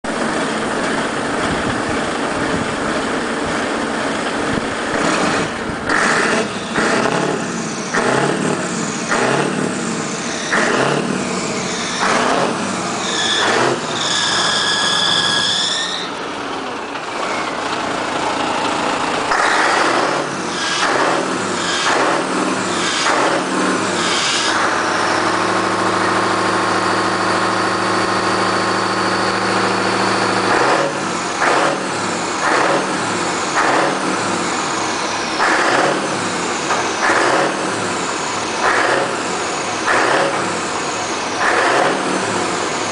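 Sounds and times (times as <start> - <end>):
diesel engine revving and idling: 0.0 - 42.9
high belt squeal: 13.0 - 16.4.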